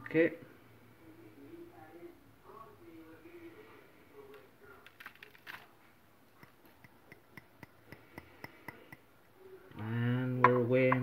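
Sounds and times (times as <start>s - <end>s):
tapping on glass beaker: 10.4s - 11.0s.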